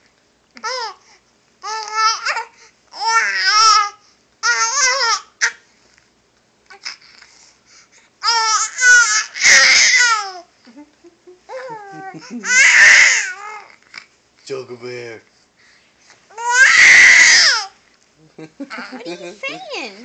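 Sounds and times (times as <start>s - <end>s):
baby babbling: 1.6s - 5.6s, 8.2s - 10.5s, 11.5s - 13.8s, 16.3s - 17.7s, 18.7s - 20.0s.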